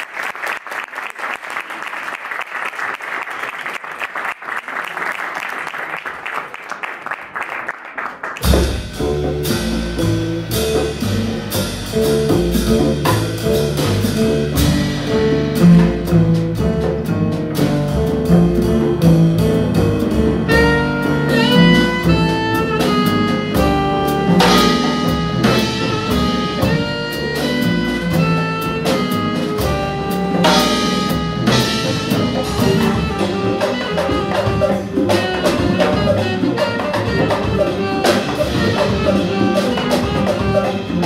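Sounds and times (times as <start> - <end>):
audience applauding: 0.0 - 8.6
live jazz band playing: 8.4 - 41.0.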